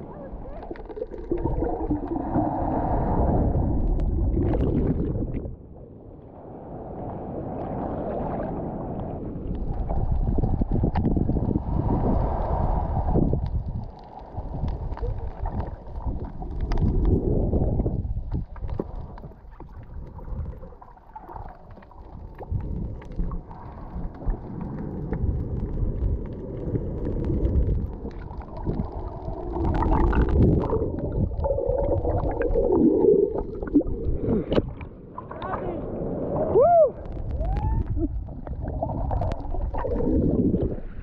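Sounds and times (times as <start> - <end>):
bubbles: 0.0 - 5.7, 9.4 - 41.0
muffled underwater water rumble: 0.0 - 41.0.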